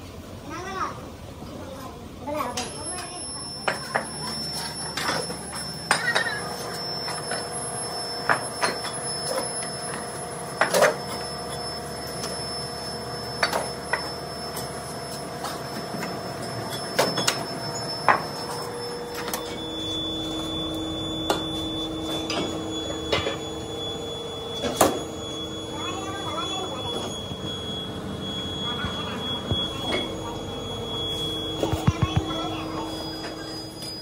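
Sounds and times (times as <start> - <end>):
steady machine hum: 2.0 - 34.0.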